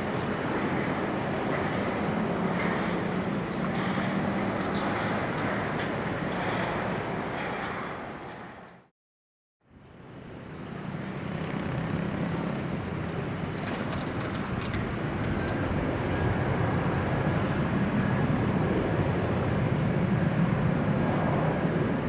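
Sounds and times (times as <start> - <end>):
jet engines droning: 0.0 - 8.9, 9.8 - 22.0.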